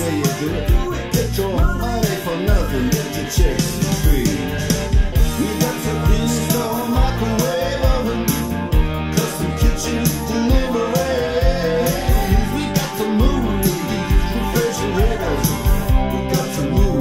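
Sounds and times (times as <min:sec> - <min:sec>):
song through car speakers: 0:00.0 - 0:17.0.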